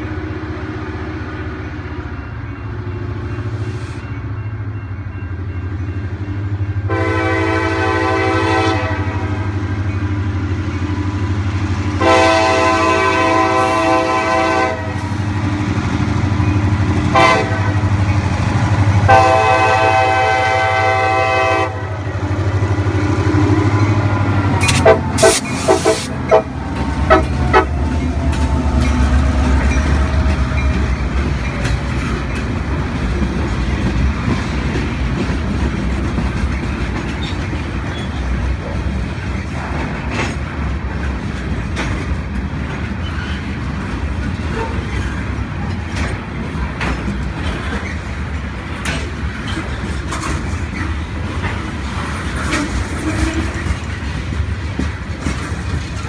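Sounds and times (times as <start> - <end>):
locomotive air horn: 6.9 - 9.4, 12.0 - 15.2, 17.1 - 17.9, 19.1 - 22.1, 24.6 - 27.9, 52.5 - 53.6
freight cars rolling by: 9.7 - 56.0
train wheel clacks: 22.2 - 56.0.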